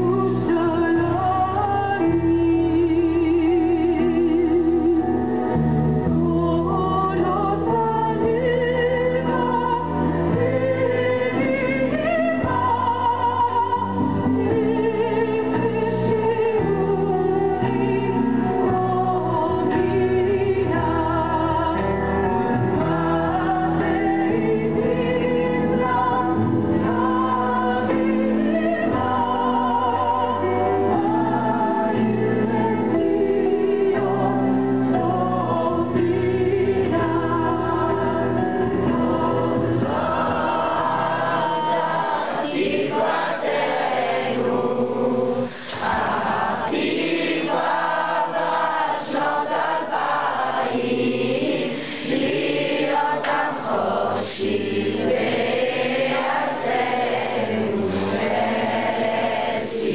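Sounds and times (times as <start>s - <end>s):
low musical accompaniment: 0.0s - 59.9s
crowd of young people singing: 9.2s - 59.9s.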